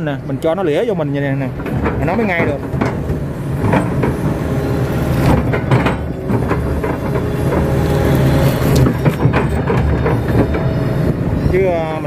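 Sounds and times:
excavator diesel engine: 0.0s - 12.0s
bucket knocking and scraping mud: 1.6s - 10.8s.

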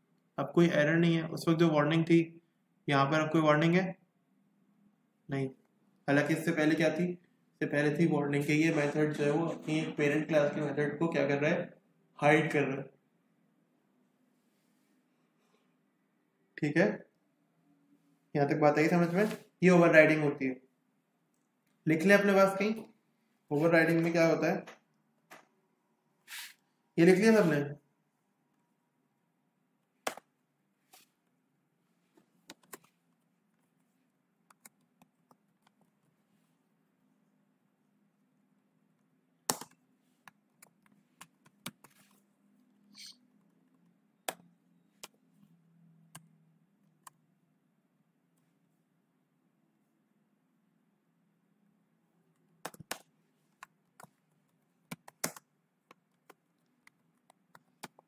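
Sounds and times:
computer keyboard typing: 52.6s - 58.0s.

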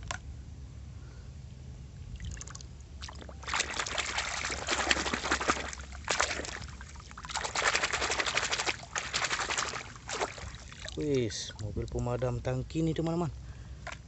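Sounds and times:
water splashing and sloshing: 2.1s - 12.2s.

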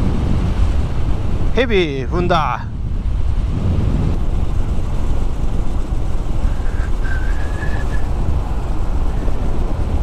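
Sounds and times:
wind buffeting microphone: 0.0s - 10.0s
motorcycle engine running: 2.7s - 10.0s.

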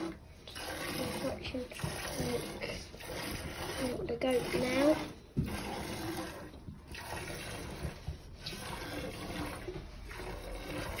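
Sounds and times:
milk squirting into metal bucket: 0.0s - 11.0s.

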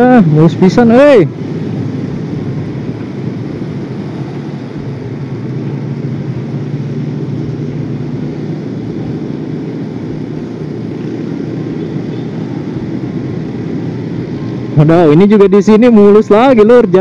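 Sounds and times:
motorcycle engine cruising: 0.0s - 17.0s
road and wind noise: 0.0s - 17.0s.

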